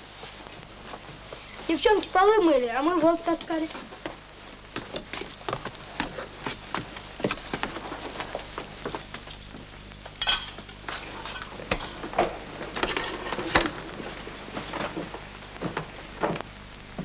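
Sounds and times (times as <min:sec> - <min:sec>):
footsteps: 0:03.6 - 0:17.0
crockery knocking and clinking: 0:10.2 - 0:12.2.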